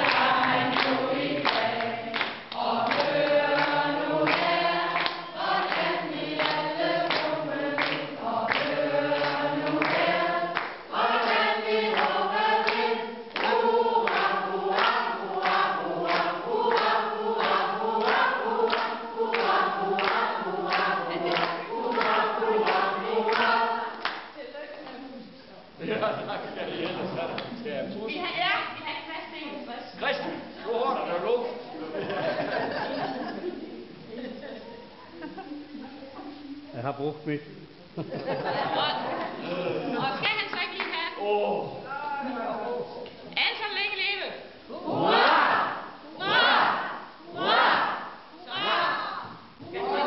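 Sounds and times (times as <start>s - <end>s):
choir singing: 0.0s - 24.2s, 44.8s - 50.0s.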